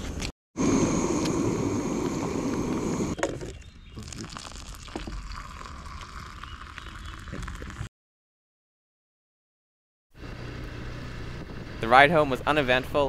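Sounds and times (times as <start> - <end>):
water boiling in a pot: 4.0 - 7.9
water pouring into a mug: 4.0 - 7.9.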